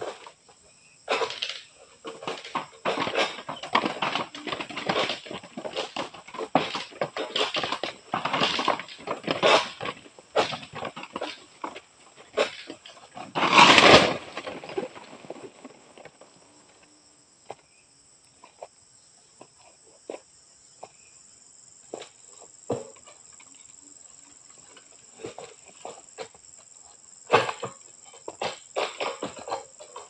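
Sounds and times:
loud rustling crash: 1.1 - 16.3.

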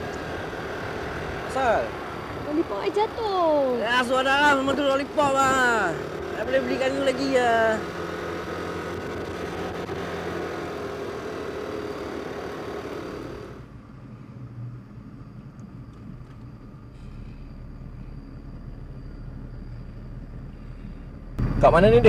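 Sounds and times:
motorcycle engine at speed: 0.0 - 13.8
car cabin hum while driving: 0.0 - 22.0.

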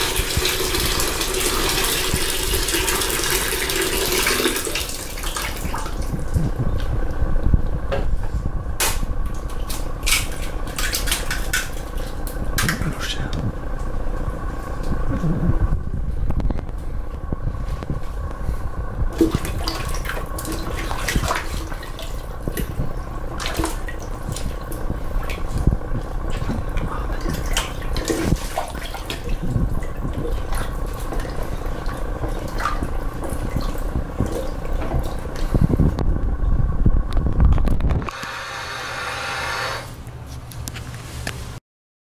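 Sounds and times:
water sloshing in toilet bowl: 0.0 - 7.1, 9.2 - 13.9, 19.1 - 36.0.

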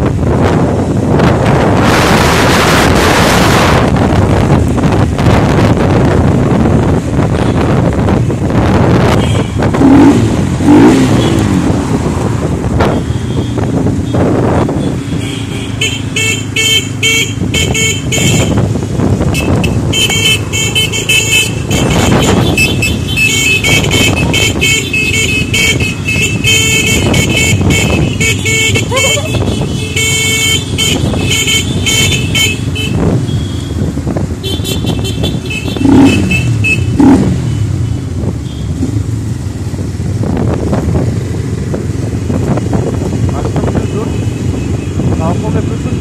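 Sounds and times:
motorcycle engines running: 0.0 - 46.0.

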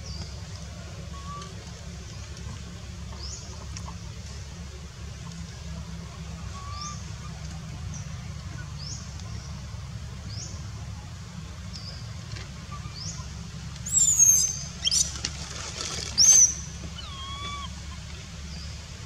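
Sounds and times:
low steady hum: 0.0 - 19.0
infant monkey crying: 17.0 - 17.8.

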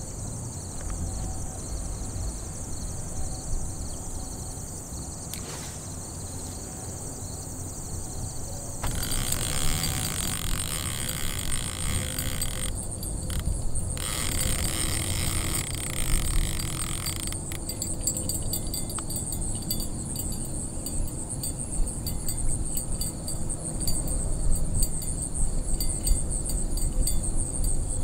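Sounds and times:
insects chirping trill: 0.0 - 28.0
hiss: 5.4 - 6.6.

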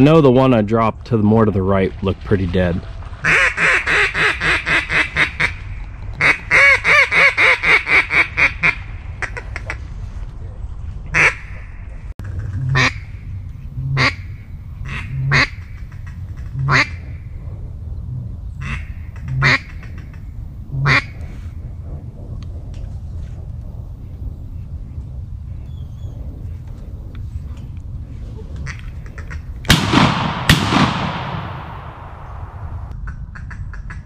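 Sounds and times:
duck quacking: 3.2 - 5.6, 11.1 - 11.7, 12.6 - 13.0, 14.8 - 17.1, 18.6 - 20.1, 20.8 - 21.1.

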